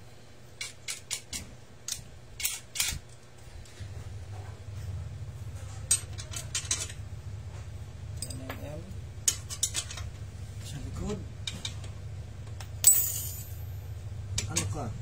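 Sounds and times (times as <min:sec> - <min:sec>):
low steady hum: 0:00.0 - 0:15.0
metal hand tools clinking: 0:08.2 - 0:08.6, 0:12.8 - 0:13.7.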